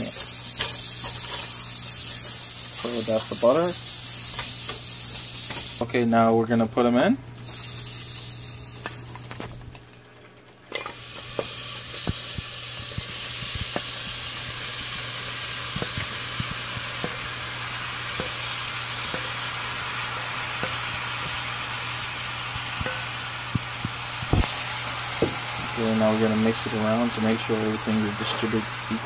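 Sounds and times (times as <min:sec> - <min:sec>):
meat frying in butter sizzle: 0:00.0 - 0:06.7, 0:07.3 - 0:29.0
pops and crackles: 0:23.5 - 0:24.6.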